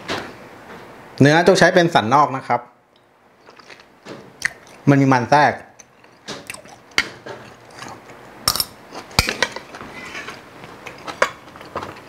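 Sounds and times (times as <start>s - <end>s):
soft chewing: 3.4s - 4.8s, 5.8s - 8.3s, 8.9s - 12.0s.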